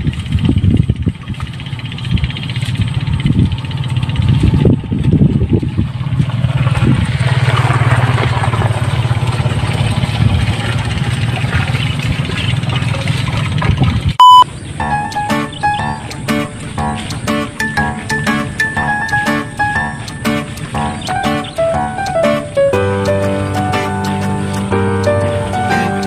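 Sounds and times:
small engine running: 0.0 - 13.6
wind buffeting microphone: 0.0 - 14.2.

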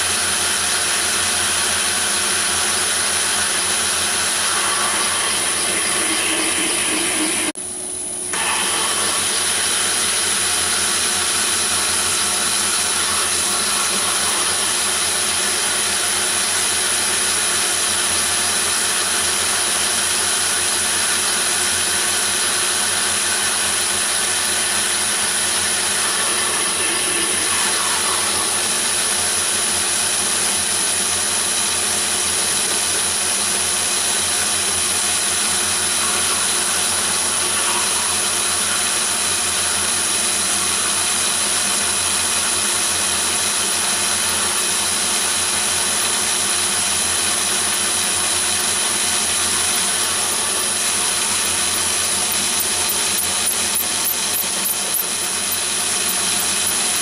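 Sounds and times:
lathe machining steel: 0.0 - 57.0
high-pitched whine: 1.5 - 16.8, 23.2 - 30.1.

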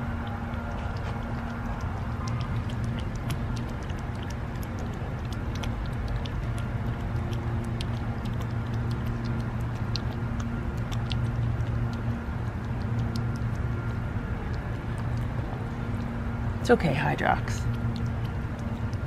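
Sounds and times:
cat lapping and chewing food: 0.0 - 19.0
steady low hum: 0.0 - 19.0.

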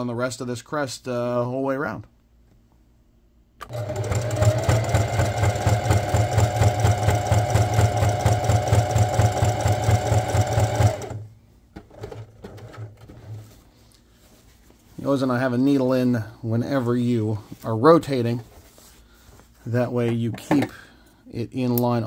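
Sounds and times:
sewing machine clattering: 3.6 - 11.2.

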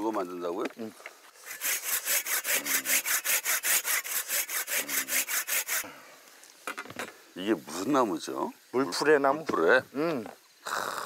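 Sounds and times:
hand saw cutting branch: 1.4 - 5.9.

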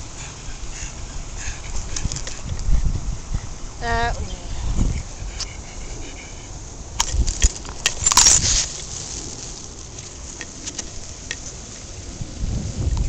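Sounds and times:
wind buffeting microphone: 0.0 - 13.0
camera handling noise: 7.0 - 11.5.

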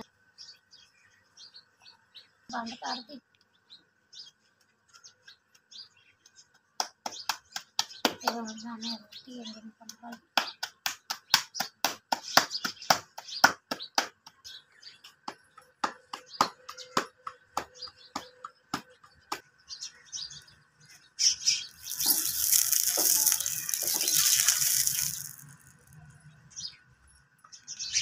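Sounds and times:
dough slapped between palms: 10.1 - 14.4
liquid sizzling on hot griddle: 21.7 - 25.6.

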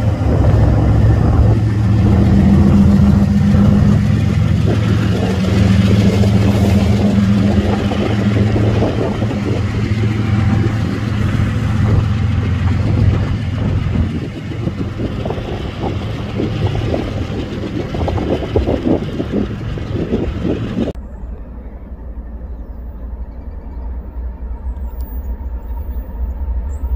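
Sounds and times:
steel wheels clattering on rails: 0.0 - 21.0
diesel locomotive engine droning: 0.0 - 26.9.

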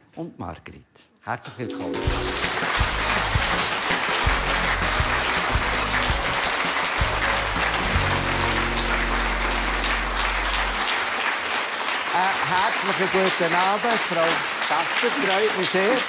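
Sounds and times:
music playing: 1.6 - 11.3
audience applauding: 1.7 - 16.0.

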